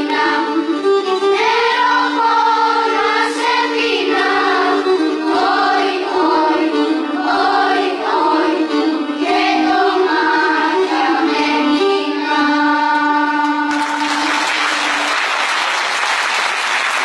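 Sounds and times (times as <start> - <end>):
mixed choir singing: 1.3 - 15.0
audience applause: 13.7 - 17.0.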